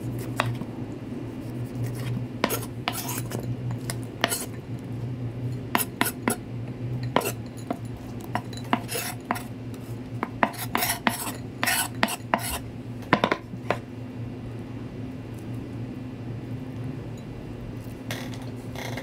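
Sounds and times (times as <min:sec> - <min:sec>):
knife scraping across board: 0:01.4 - 0:03.5, 0:04.2 - 0:04.6, 0:05.8 - 0:06.4, 0:07.2 - 0:07.5, 0:08.4 - 0:09.5, 0:10.2 - 0:12.6.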